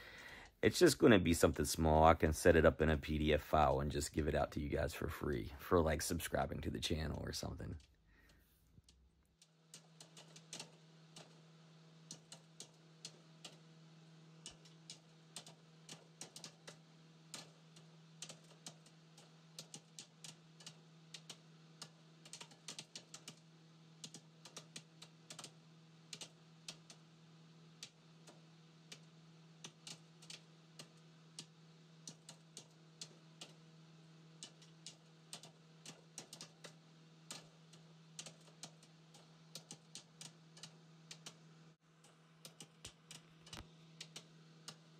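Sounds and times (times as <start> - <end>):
low steady hum: 0.0 - 22.2.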